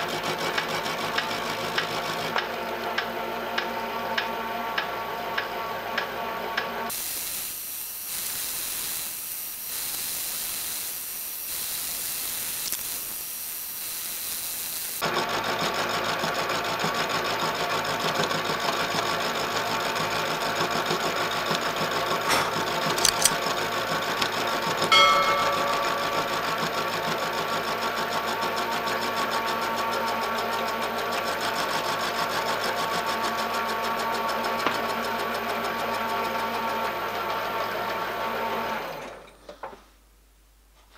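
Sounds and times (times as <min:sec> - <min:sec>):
steady hiss: 0:06.9 - 0:15.0
milling machine motor whine: 0:06.9 - 0:15.9
end mill cutting metal chatter: 0:19.8 - 0:28.1
sharp clicks: 0:22.3 - 0:23.4
brief ringing tone: 0:24.9 - 0:27.3.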